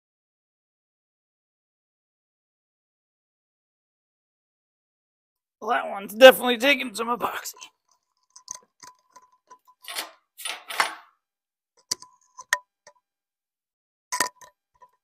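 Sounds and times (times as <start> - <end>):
syringe clicks and taps: 7.6 - 9.8, 11.8 - 13.0, 14.2 - 15.0.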